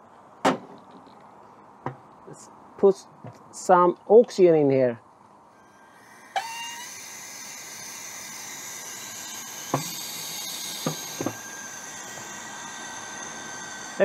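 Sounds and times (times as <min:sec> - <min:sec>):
thin steady whistle: 0:05.5 - 0:14.0.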